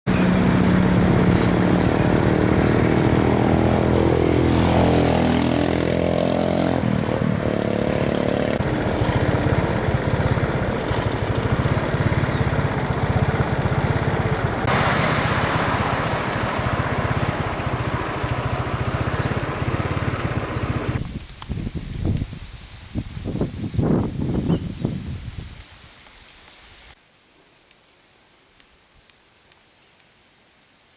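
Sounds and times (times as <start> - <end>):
vehicles passing: 0.1 - 21.0
rush of traffic noise: 0.1 - 21.1.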